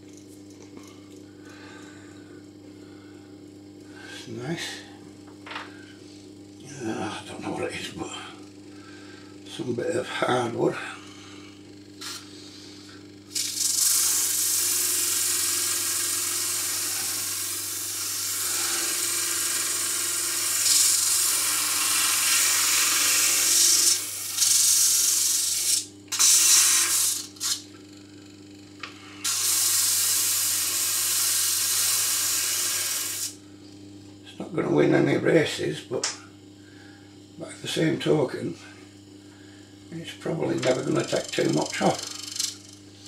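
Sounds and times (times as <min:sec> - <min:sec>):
disc sander motor hum: 0:09.3 - 0:35.0, 0:39.9 - 0:43.0
wood sanding hiss: 0:13.4 - 0:27.6, 0:29.2 - 0:33.4.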